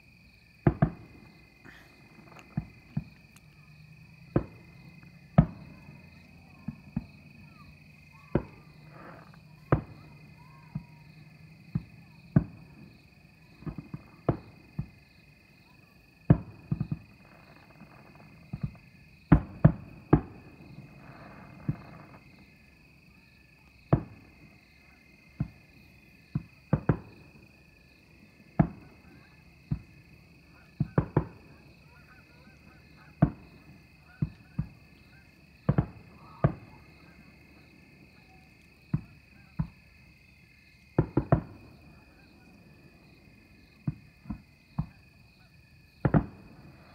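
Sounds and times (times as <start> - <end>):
night insects chirring: 0.0 - 46.9
fireworks bursting: 0.6 - 15.0, 16.2 - 22.5, 23.8 - 27.6, 28.2 - 40.0, 40.8 - 45.3, 45.9 - 46.9.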